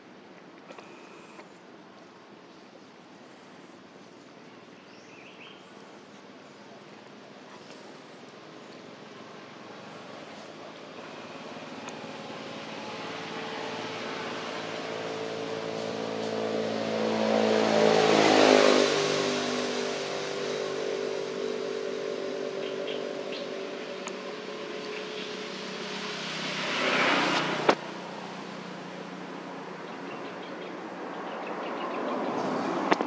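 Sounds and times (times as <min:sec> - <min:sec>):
vehicle driving past: 0:08.9 - 0:33.0.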